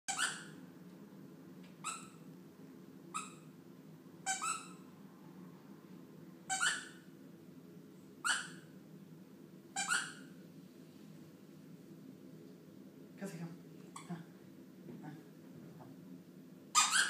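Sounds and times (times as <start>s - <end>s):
puppy whining: 0.1s - 0.6s, 1.8s - 2.2s, 4.2s - 4.9s, 6.5s - 7.0s, 9.8s - 10.4s, 16.7s - 17.0s.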